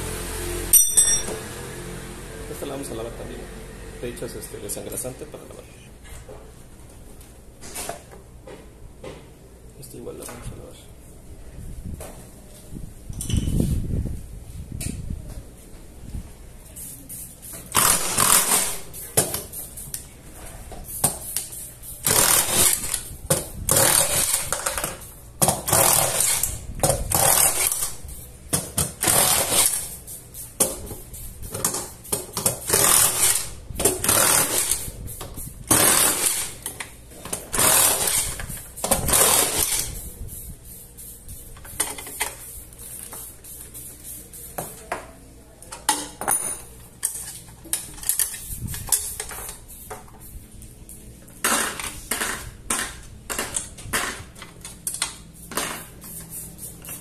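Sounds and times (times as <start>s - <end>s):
light metallic clinks: 0.8s - 1.4s
cordless drill bursts: 17.8s - 18.8s.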